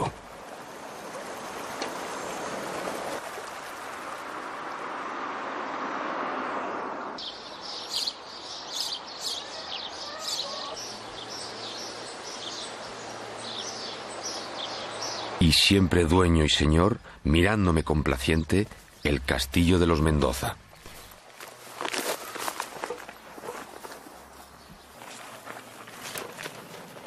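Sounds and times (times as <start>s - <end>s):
running water rushing: 0.0s - 5.4s
small birds chirping: 7.2s - 27.0s.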